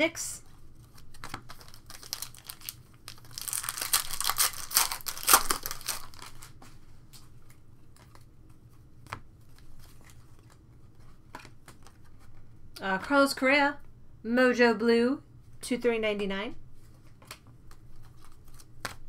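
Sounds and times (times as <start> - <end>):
foil wrapper crinkling: 0.8 - 6.6.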